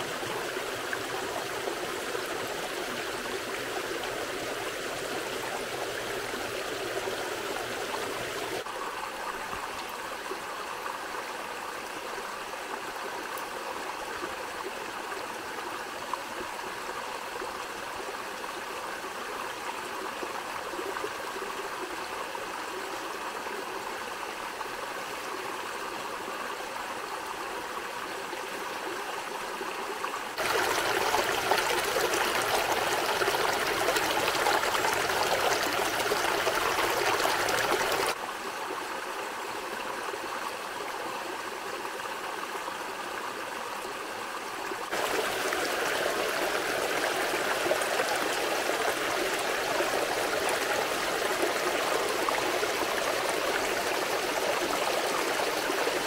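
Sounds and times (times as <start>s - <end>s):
water splashing over rocks: 30.4s - 38.2s, 44.9s - 49.2s.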